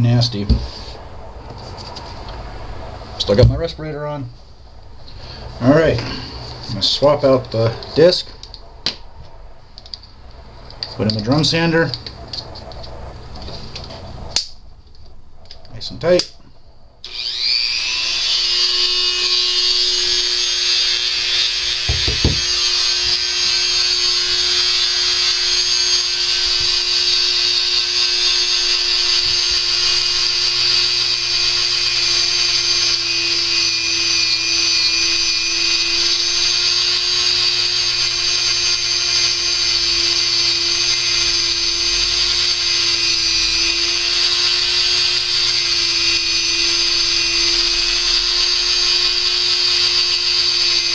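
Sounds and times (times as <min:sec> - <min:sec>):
rotary tool whining: 0:09.8 - 0:14.4, 0:17.0 - 0:50.9
knock: 0:21.9 - 0:22.4.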